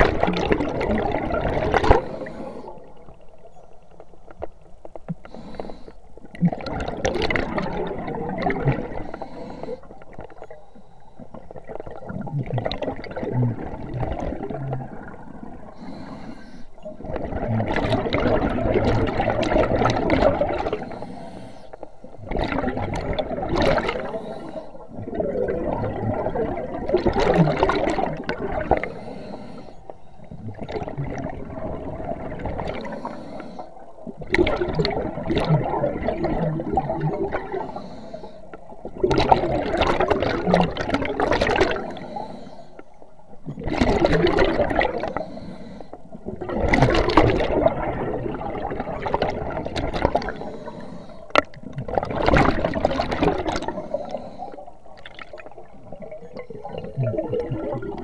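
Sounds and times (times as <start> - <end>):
diver exhaling bubbles underwater: 0.0 - 3.0, 6.3 - 9.8, 11.4 - 16.1, 16.8 - 21.1, 22.2 - 29.2, 30.3 - 33.2, 34.0 - 38.0, 38.8 - 42.3, 43.4 - 45.4, 46.1 - 58.0.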